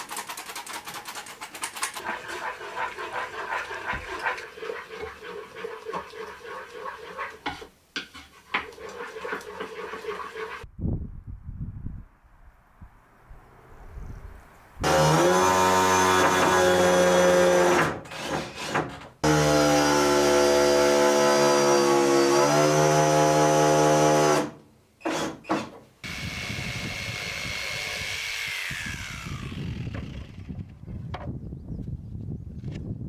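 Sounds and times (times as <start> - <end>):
whirring winding down: 26.1 - 30.4.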